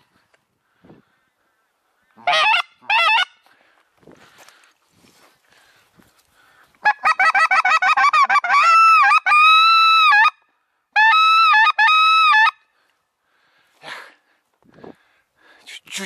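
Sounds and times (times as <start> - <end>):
goose call honks: 2.2 - 3.4.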